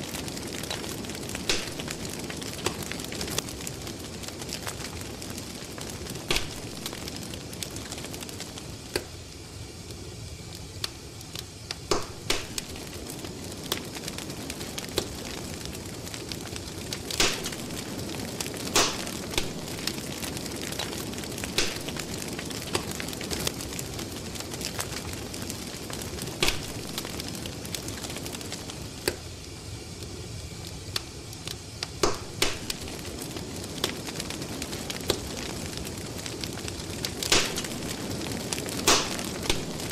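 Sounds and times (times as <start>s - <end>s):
crackling fire with pops: 0.0s - 39.9s.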